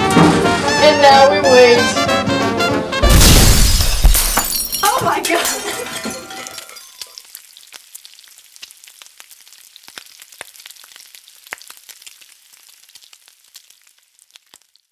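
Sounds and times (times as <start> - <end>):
crackling and sizzling: 3.0 - 14.9.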